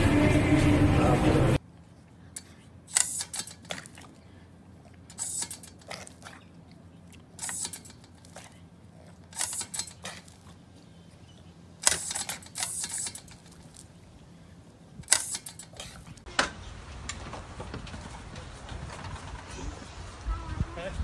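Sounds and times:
dog snapping at water: 5.2s - 10.4s.

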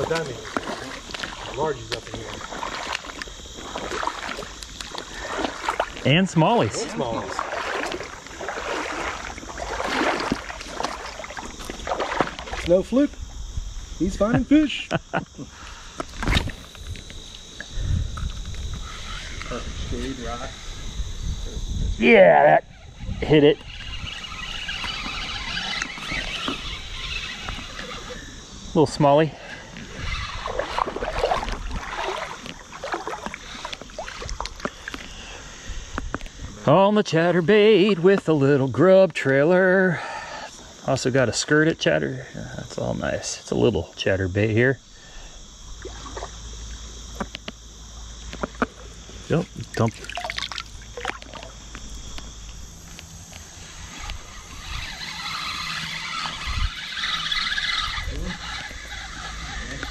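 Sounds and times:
fish splashing at water surface: 0.0s - 6.0s, 6.8s - 12.6s, 30.3s - 35.2s, 49.7s - 51.6s
fishing reel whirring: 0.0s - 59.9s.

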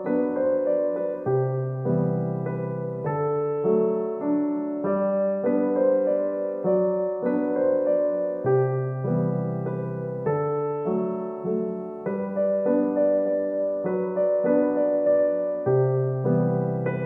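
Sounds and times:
gentle piano melody: 0.0s - 17.0s.

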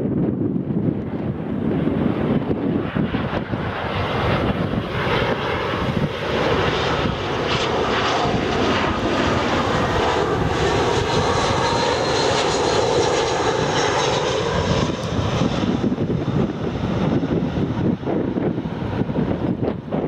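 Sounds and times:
airliner jet engines rumbling: 0.0s - 20.0s.

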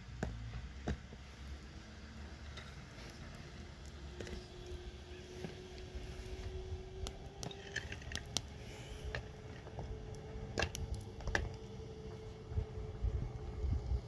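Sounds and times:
wood fire crackling: 0.0s - 13.2s
wind rumbling on microphone: 4.2s - 14.0s.

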